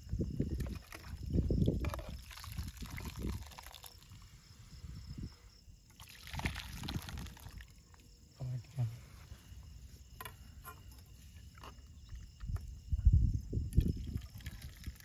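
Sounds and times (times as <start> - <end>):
thick liquid sloshing and glugging: 0.3 - 4.3, 5.8 - 8.1, 13.6 - 15.0.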